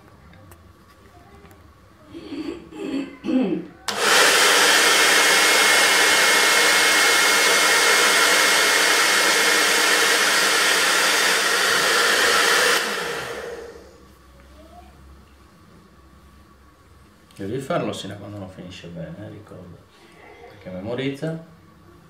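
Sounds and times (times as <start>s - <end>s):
hair dryer blowing: 3.9s - 14.0s.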